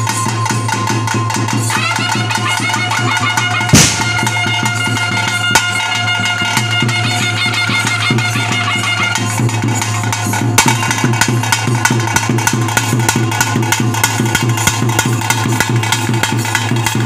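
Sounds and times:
steady drumming: 0:00.0 - 0:17.0
high held melody: 0:01.6 - 0:10.1
loud sharp crash: 0:03.8 - 0:04.4.

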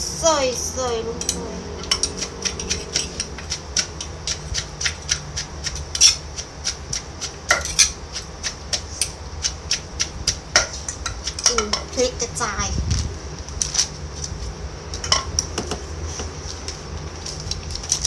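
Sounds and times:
pestle pounding in clay mortar: 0:01.8 - 0:11.9.

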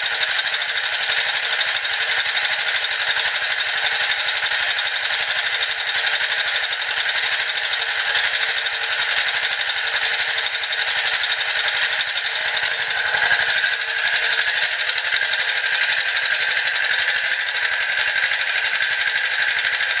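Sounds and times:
small engine chugging: 0:00.0 - 0:20.0
high steady whine: 0:11.1 - 0:19.9.

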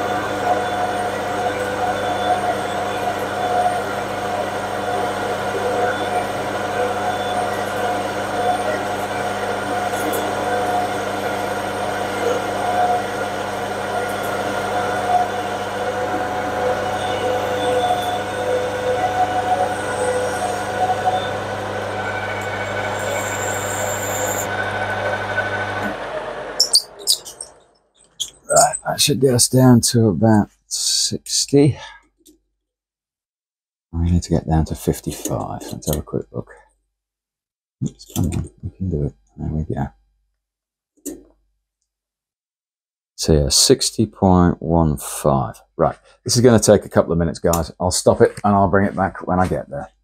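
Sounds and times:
metal lathe humming: 0:00.0 - 0:27.6.

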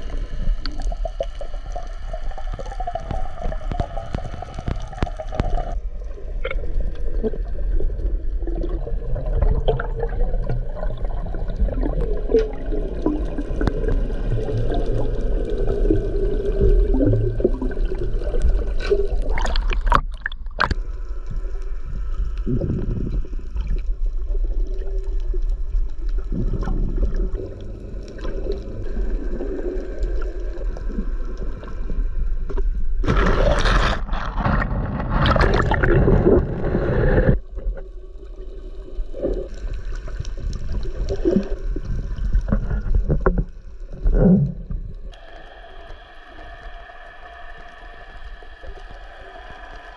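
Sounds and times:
muffled underwater water rushing: 0:00.0 - 0:49.9
bubbly bursts: 0:33.0 - 0:37.8.

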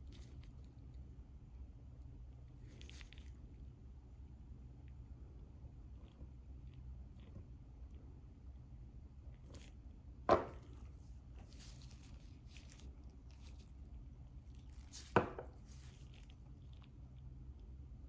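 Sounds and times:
gloved hands rustling: 0:10.4 - 0:16.5.

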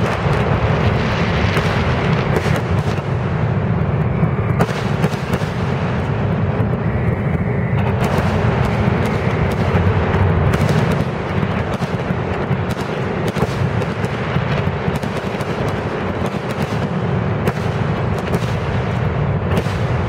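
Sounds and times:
low rumble: 0:00.0 - 0:14.9
fireworks bursting: 0:00.0 - 0:20.0.

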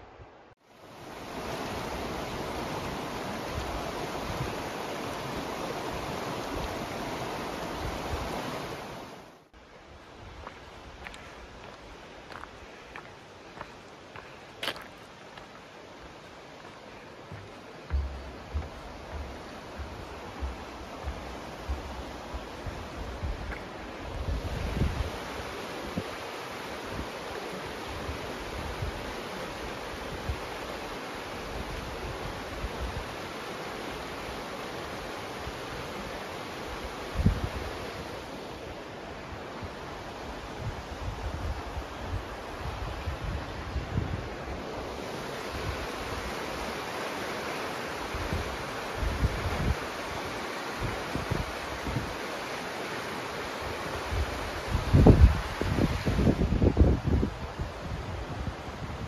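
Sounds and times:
river rushing over rocks: 0:00.6 - 0:09.6, 0:10.2 - 0:59.0
wind buffeting microphone: 0:17.3 - 0:26.2, 0:37.1 - 0:37.8, 0:54.0 - 0:59.0.

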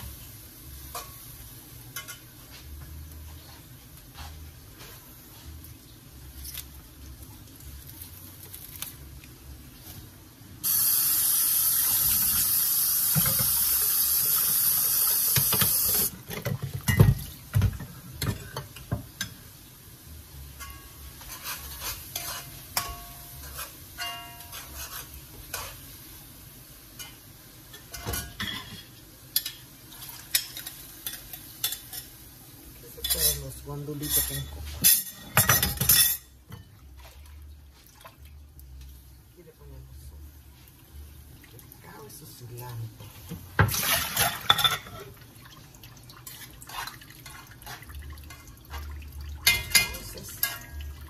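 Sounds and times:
utensils clinking against pots: 0:01.9 - 0:02.3, 0:20.6 - 0:25.8, 0:27.0 - 0:32.1, 0:32.8 - 0:36.7, 0:43.6 - 0:45.2, 0:46.2 - 0:51.0
kitchen tap running: 0:10.6 - 0:19.0.

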